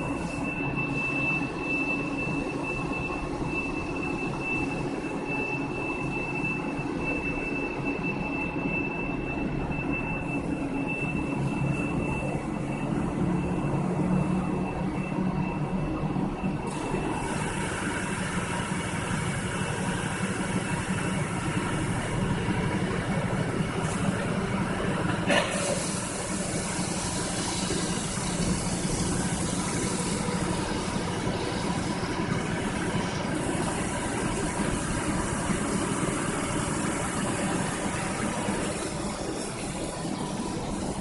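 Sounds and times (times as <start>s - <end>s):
drilling machine humming: 16.7s - 41.0s
coolant hissing: 25.3s - 41.0s.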